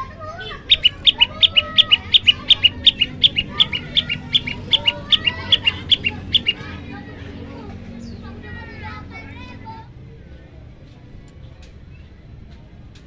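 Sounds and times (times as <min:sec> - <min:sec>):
bird singing short double notes: 0:00.6 - 0:06.6.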